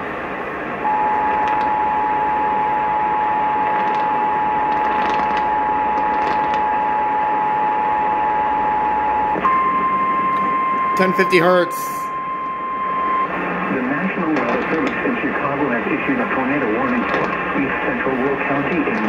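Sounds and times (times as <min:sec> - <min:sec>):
two-tone attention signal: 0:00.8 - 0:13.4
single warning tone: 0:00.8 - 0:14.1
radio static: 0:03.4 - 0:07.0, 0:13.6 - 0:19.0.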